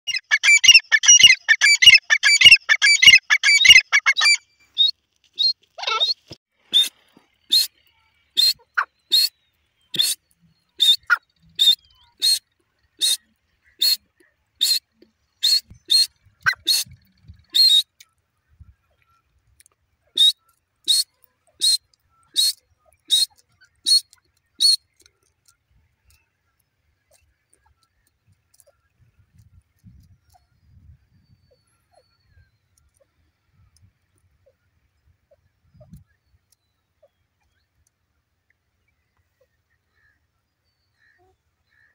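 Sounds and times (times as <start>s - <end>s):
francolin calling: 0.1s - 9.3s.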